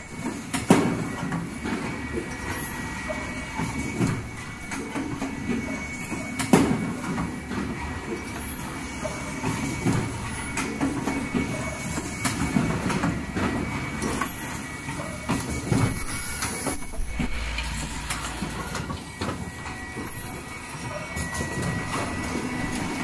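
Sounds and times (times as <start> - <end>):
machine din: 0.0 - 0.5, 2.4 - 6.6, 8.3 - 9.2, 9.8 - 12.4, 14.0 - 14.7, 15.7 - 20.7
mechanical clatters and knocks: 0.0 - 23.0.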